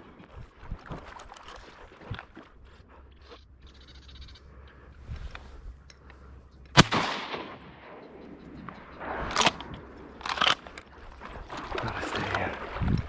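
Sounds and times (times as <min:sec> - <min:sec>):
loud shotgun blast: 0:06.8 - 0:08.0.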